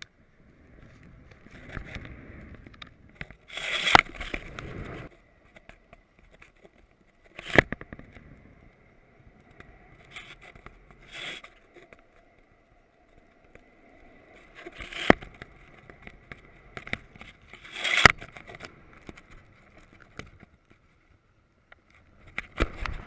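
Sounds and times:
wind buffeting: 0.2s - 5.6s.

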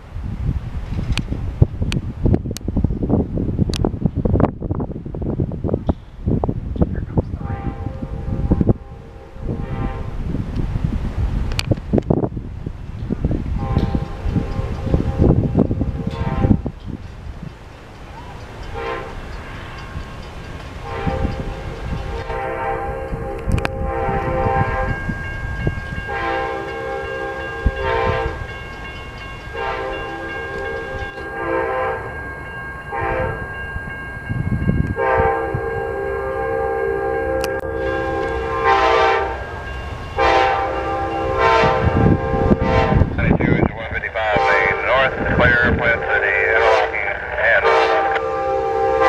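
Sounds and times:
train air horn blasts: 7.4s - 10.2s, 13.6s - 16.7s, 18.7s - 19.2s, 20.8s - 25.0s, 26.1s - 28.4s, 29.5s - 32.1s, 32.9s - 33.4s, 35.0s - 43.3s, 44.3s - 44.8s, 46.6s - 49.0s.

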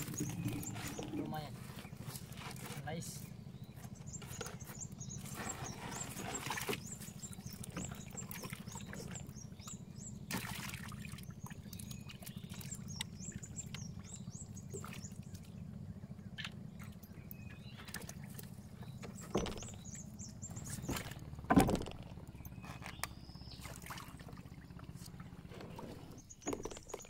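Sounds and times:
steady low hum: 0.0s - 26.4s
water dripping and splashing: 10.3s - 14.1s
knocks from handling net: 20.8s - 22.2s.

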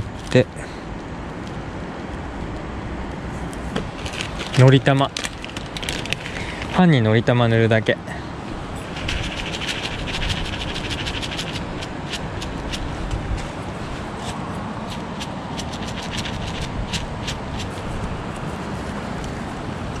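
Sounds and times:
steady rushing background: 8.4s - 20.0s.

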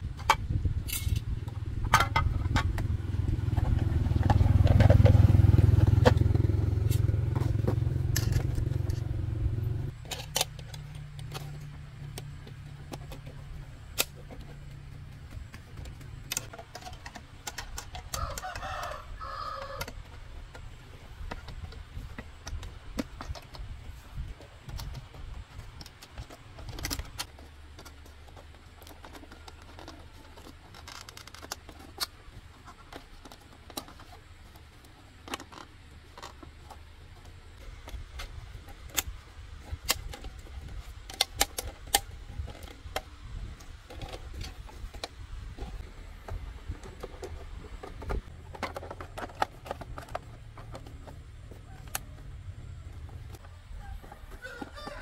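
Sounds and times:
motorbike engine running: 1.3s - 10.0s.

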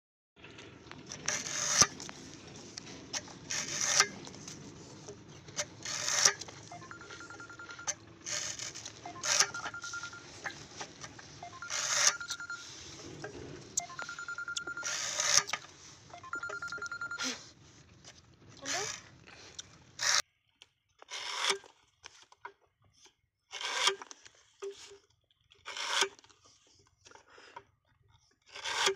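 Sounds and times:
bud chipper chopping sugarcane: 1.1s - 2.1s, 3.1s - 6.7s, 8.2s - 9.8s.

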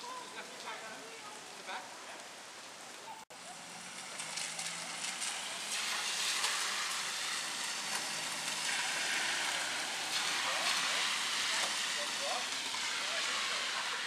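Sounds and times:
rain hissing on pavement and leaves: 0.0s - 14.0s.

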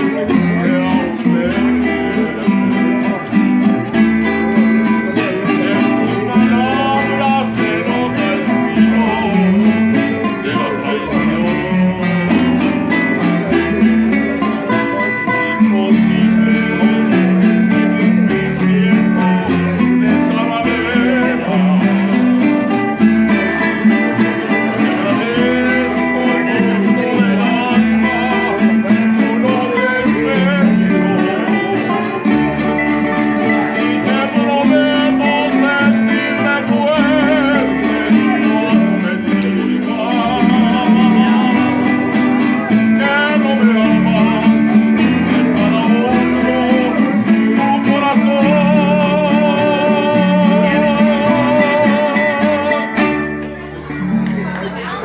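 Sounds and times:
man singing with vibrato: 0.0s - 54.0s
strummed guitars: 0.0s - 55.0s.

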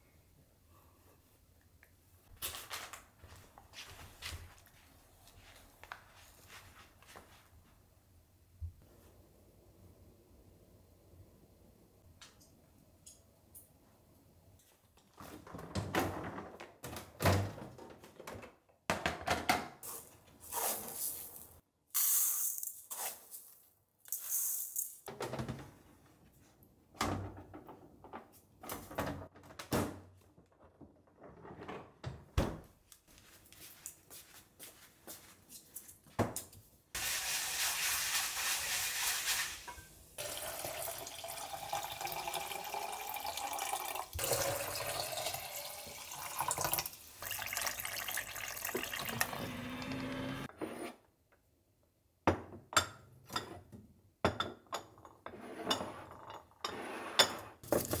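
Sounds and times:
water pouring into glass jars: 37.0s - 50.2s.

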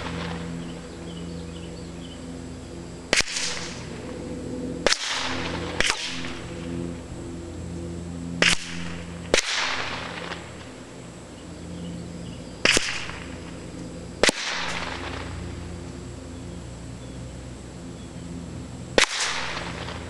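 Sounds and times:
steady low hum: 0.0s - 20.0s
gunshots echoing: 3.1s - 4.0s, 4.8s - 6.4s, 8.4s - 10.4s, 12.6s - 13.2s, 14.2s - 15.3s.

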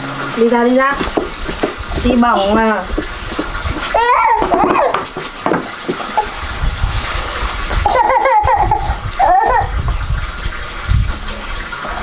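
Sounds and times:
water splashing: 0.0s - 12.0s
toddler babbling and laughing: 3.9s - 5.0s, 7.8s - 9.9s.

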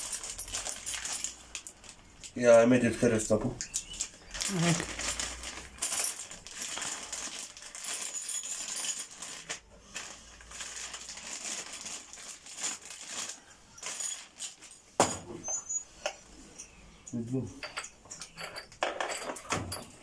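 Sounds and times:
plastic bag crinkling: 0.0s - 3.1s, 3.8s - 15.0s.

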